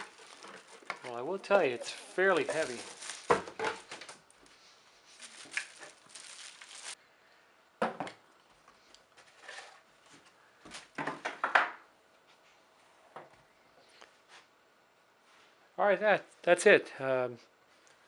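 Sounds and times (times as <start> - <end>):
plastic bag crinkling: 0.0 - 4.2, 5.1 - 7.0.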